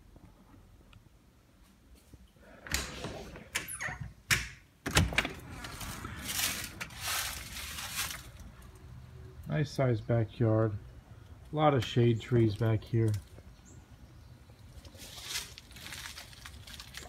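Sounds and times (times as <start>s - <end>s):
door swinging open rush: 2.6s - 8.4s
door latch clicks and knocks: 3.5s - 5.4s.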